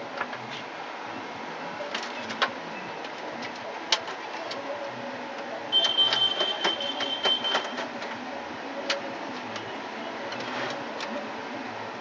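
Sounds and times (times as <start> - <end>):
steady background noise: 0.0 - 12.0
computer parts clicking into case: 5.7 - 8.2.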